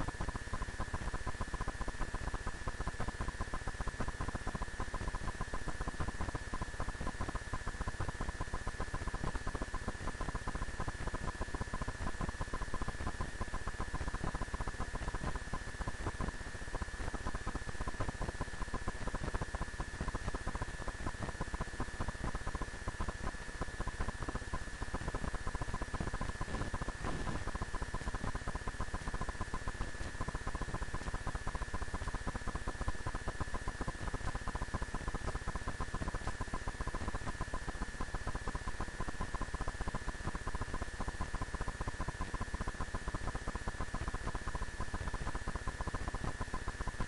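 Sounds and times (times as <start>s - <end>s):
electrical hiss and buzz: 24.2s - 35.1s
high thin whine: 26.5s - 27.7s.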